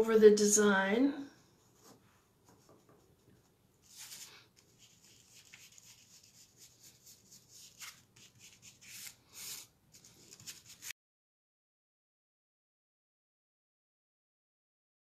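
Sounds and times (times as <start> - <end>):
brush swishing on paper: 3.8 - 10.9.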